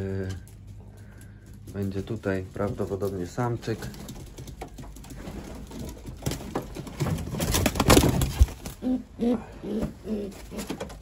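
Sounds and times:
wings flapping and scuffling: 0.0s - 11.0s
pigeons cooing: 8.7s - 11.0s.

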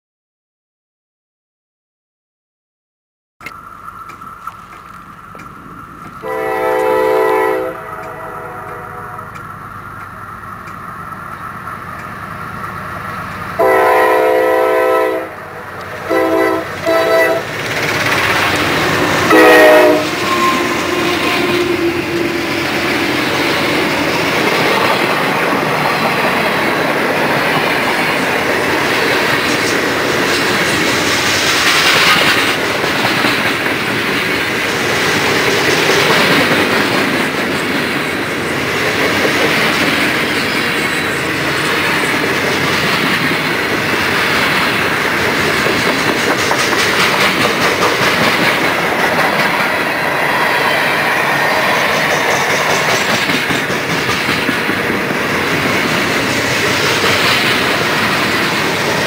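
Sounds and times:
wheels clacking over rail joints: 3.4s - 13.8s, 15.6s - 59.0s
train rumbling past: 3.6s - 59.0s
locomotive air horn blasts: 6.2s - 9.4s, 13.6s - 17.5s, 19.2s - 22.2s.

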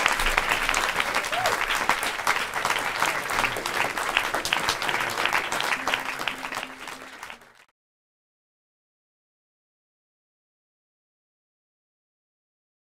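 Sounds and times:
audience clapping: 0.0s - 7.7s.

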